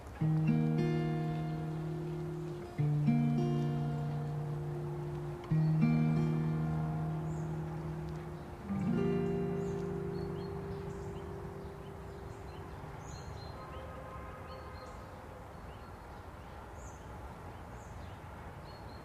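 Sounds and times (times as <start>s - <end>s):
birds chirping: 0.0s - 19.0s
acoustic guitar chord ringing: 0.2s - 13.2s.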